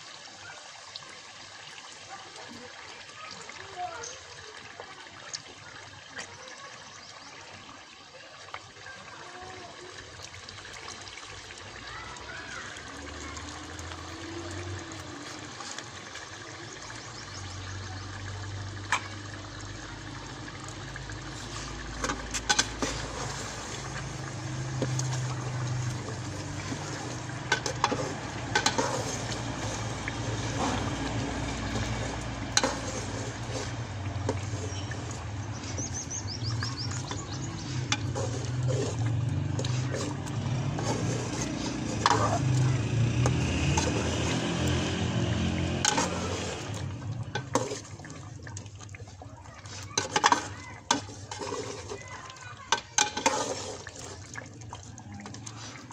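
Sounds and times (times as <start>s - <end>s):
curry bubbling and sizzling: 0.0s - 55.9s
wooden spoon scraping pot: 21.2s - 48.1s, 49.6s - 55.9s.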